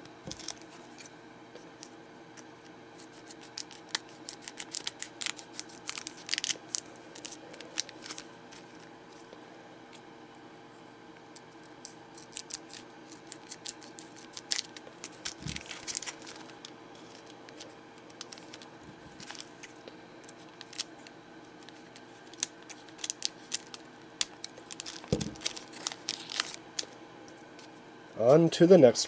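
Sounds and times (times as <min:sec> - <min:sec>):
scissors snipping foil: 0:03.0 - 0:08.2, 0:21.6 - 0:26.9
foil wrapper crinkling: 0:03.0 - 0:08.9, 0:11.6 - 0:27.0.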